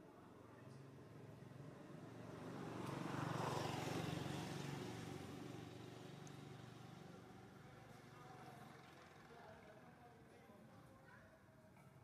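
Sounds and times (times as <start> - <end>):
vehicle engine passing by: 1.5 - 7.6.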